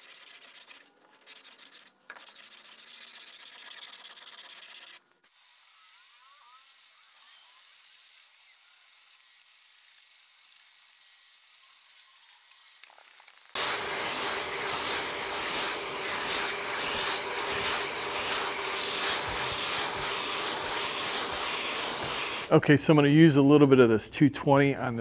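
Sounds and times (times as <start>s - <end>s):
sandpaper scraping: 0.0s - 22.5s
vacuum hiss and hum: 13.6s - 22.7s.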